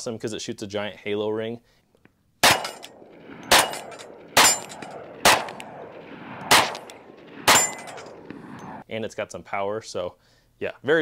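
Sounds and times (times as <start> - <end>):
pistol shots: 2.4 - 8.3.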